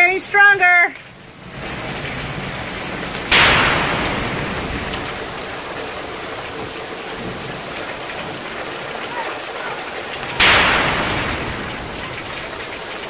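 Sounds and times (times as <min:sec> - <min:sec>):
heavy rain pouring: 0:00.0 - 0:13.0
loud thunderclap: 0:01.5 - 0:08.6, 0:10.1 - 0:13.0.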